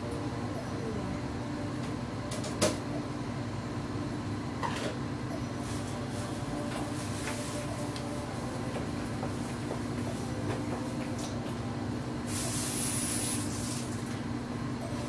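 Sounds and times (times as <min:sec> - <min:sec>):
mechanical hum: 0:00.0 - 0:15.0.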